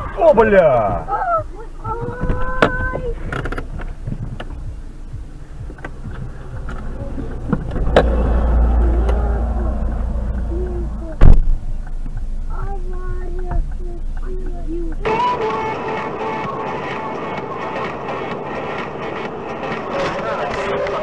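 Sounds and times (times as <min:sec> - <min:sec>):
low rumble: 0:00.0 - 0:15.1
knocks and clicks: 0:05.6 - 0:08.2
loud thump: 0:05.6 - 0:11.8.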